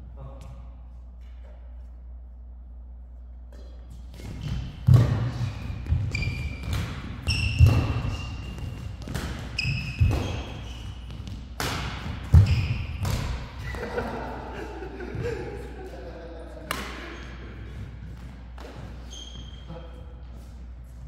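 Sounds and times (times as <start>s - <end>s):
shoes squeaking on court: 3.5s - 13.6s, 17.0s - 21.0s
rackets striking shuttlecock: 3.5s - 13.8s, 16.6s - 17.2s.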